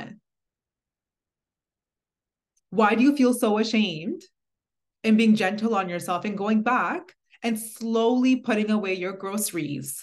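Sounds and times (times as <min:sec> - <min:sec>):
woman speaking: 0:00.0 - 0:00.3, 0:02.7 - 0:04.4, 0:05.0 - 0:10.0.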